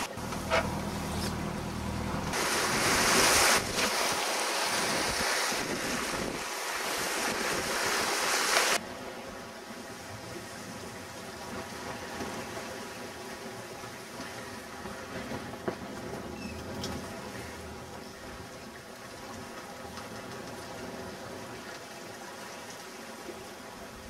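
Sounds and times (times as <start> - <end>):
water washing along hull: 0.0 - 24.0
wind buffeting microphone: 2.3 - 8.3.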